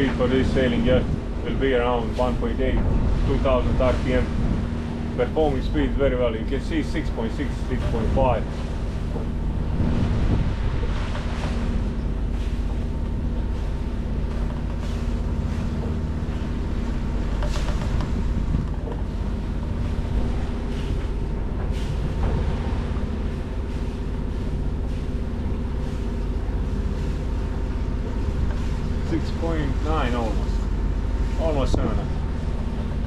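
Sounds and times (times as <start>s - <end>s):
marine diesel engine running: 0.0s - 33.0s
sea noise: 0.0s - 33.0s
wind: 0.0s - 33.0s.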